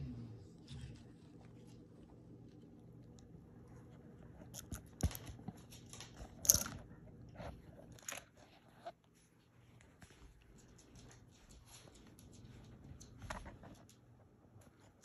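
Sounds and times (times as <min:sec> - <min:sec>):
faint steady hum: 0:00.0 - 0:15.0
dog crunching and chewing: 0:04.2 - 0:08.7.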